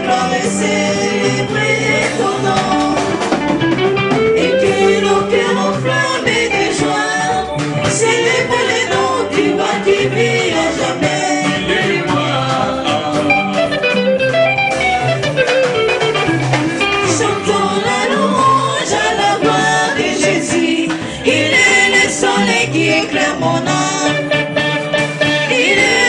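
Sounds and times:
women singing a hymn: 0.0 - 3.4, 4.4 - 13.5, 17.0 - 24.4, 25.5 - 26.0
band with drums keyboard guitar: 0.0 - 26.0
pulsing bass: 0.0 - 26.0.

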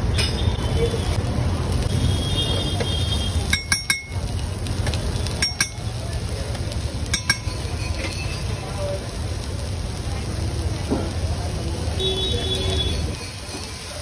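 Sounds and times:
metal spatula clinking on griddle: 0.1 - 0.6, 3.5 - 4.2, 5.3 - 6.0, 7.0 - 8.6.

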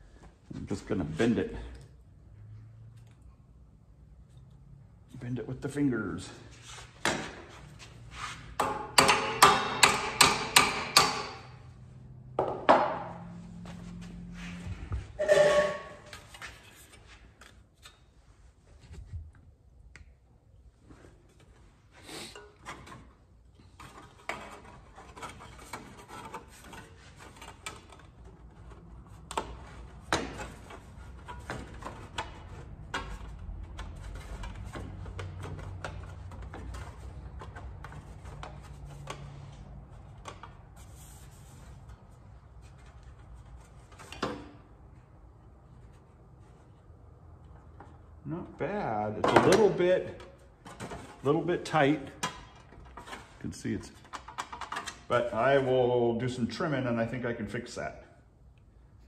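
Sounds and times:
sharp knocks on metal: 8.6 - 11.5.

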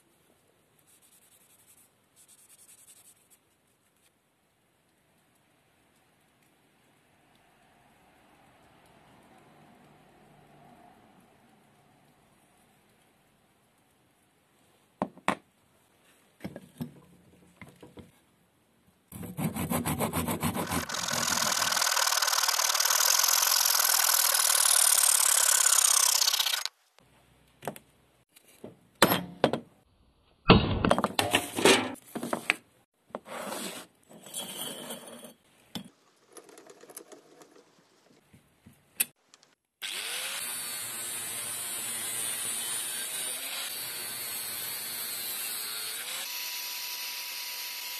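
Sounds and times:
chisel scraping wood: 19.2 - 21.7
angle grinder cutting steel pipe: 19.6 - 26.7, 39.8 - 47.9
power tool running: 20.6 - 26.7.

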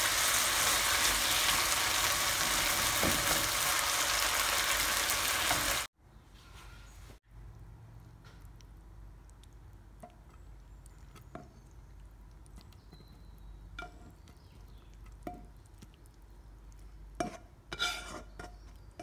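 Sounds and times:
utensil scraping ceramic plate: 17.2 - 18.6.

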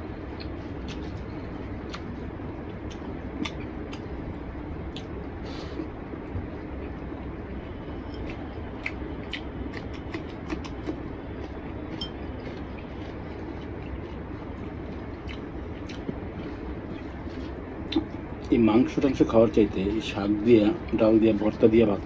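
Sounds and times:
low background hum: 0.0 - 22.0
chewing: 0.3 - 4.1, 4.9 - 6.0, 8.0 - 18.6
fingers mixing food on a plate: 8.0 - 22.0.

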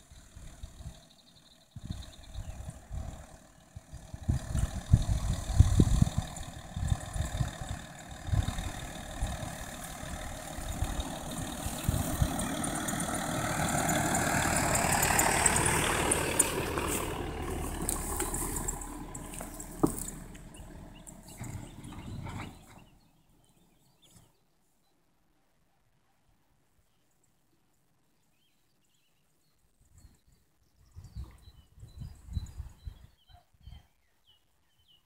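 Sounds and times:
diesel car engine at low revs: 0.0 - 23.1
tyres crackling over stones: 9.4 - 22.7.

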